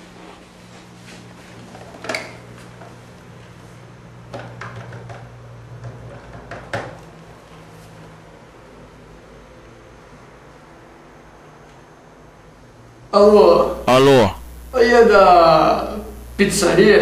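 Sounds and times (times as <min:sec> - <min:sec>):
steady low hum: 0:13.5 - 0:17.0.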